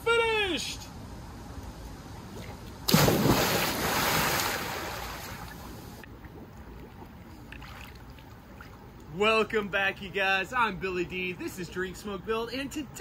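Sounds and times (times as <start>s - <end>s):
loud splash into pool: 2.9s - 5.6s
water churning: 2.9s - 9.0s.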